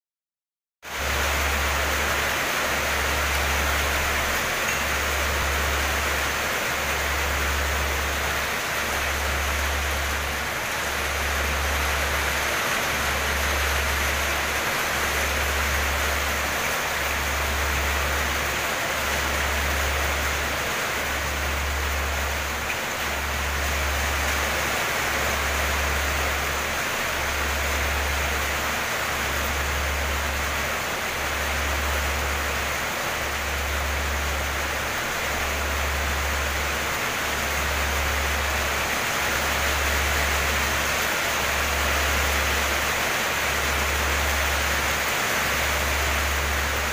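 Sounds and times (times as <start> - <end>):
heavy rain pouring on leaves: 0.8 - 46.9.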